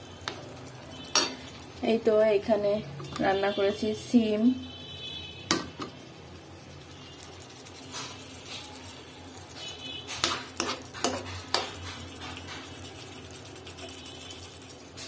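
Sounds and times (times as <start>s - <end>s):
spoon scraping a frying pan: 1.0s - 1.6s, 7.2s - 15.0s.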